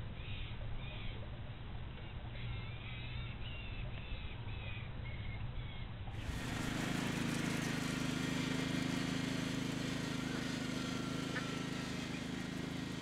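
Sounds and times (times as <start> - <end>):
lawn mower engine droning: 6.1 - 13.0.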